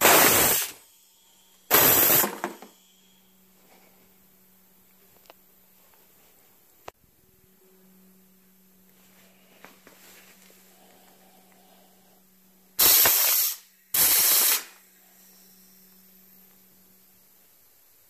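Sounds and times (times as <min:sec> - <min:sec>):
gas blasts hissing from valve: 0:00.0 - 0:00.9, 0:01.7 - 0:02.8, 0:12.8 - 0:15.2.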